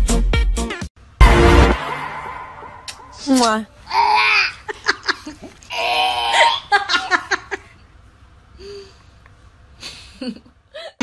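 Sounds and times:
woman laughing: 4.6s - 5.5s, 6.3s - 7.7s.

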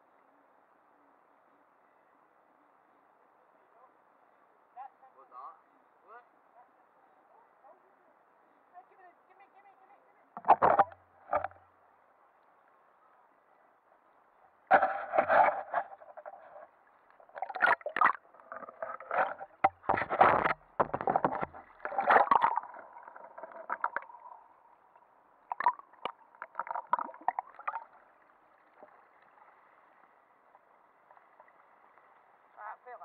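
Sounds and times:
muffled water sloshing and gurgling: 10.4s - 11.6s, 14.7s - 32.9s.

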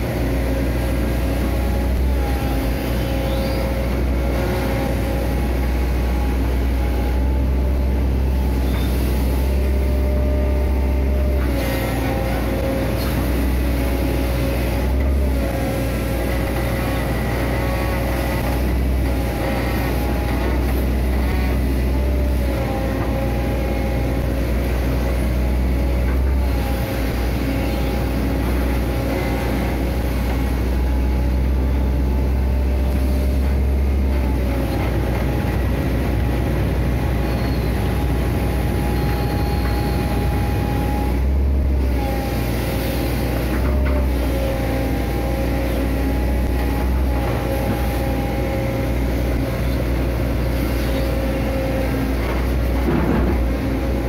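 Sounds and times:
excavator diesel engine and hydraulics: 0.0s - 54.0s.

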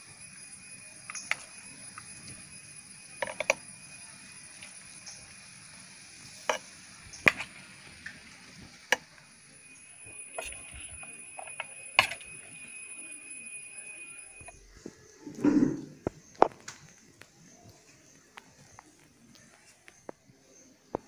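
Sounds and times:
spoon clinking against glass jar: 10.0s - 12.9s.

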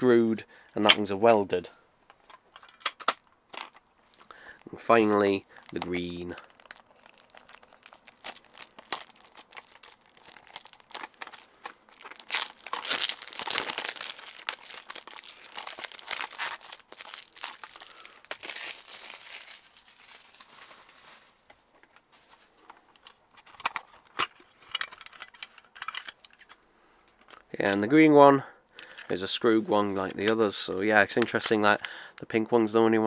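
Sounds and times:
plastic wrapping crackling: 3.6s - 21.6s.

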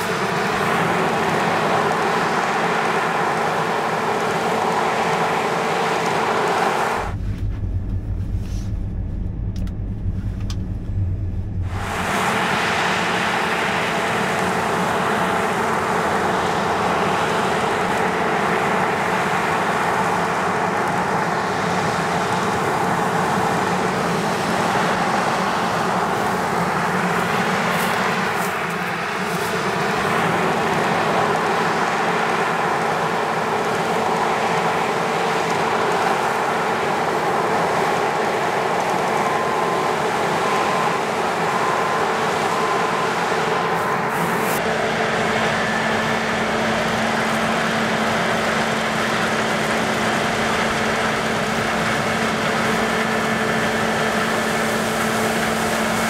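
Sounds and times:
harvester and tractor engines: 0.0s - 56.0s
deep low rumble: 7.0s - 13.0s.

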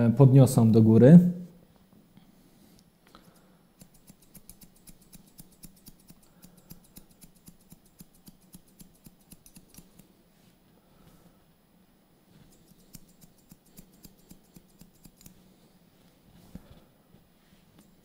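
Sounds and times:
scissors snipping hair: 3.2s - 10.1s, 12.4s - 15.4s.

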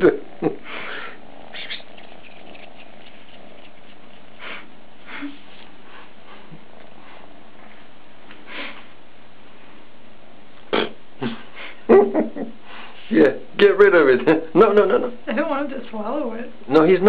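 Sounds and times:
kitten purring: 0.0s - 7.7s
kitten rustling with feather: 1.4s - 7.8s.

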